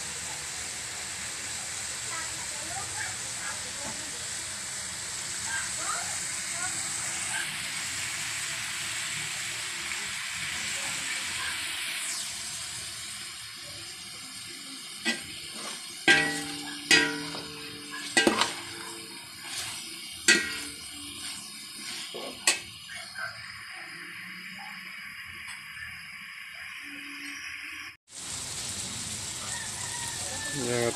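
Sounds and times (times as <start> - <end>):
food sizzling in a pan: 0.0 - 30.9
metal ladle knocking on pan: 16.1 - 19.7, 20.3 - 21.1.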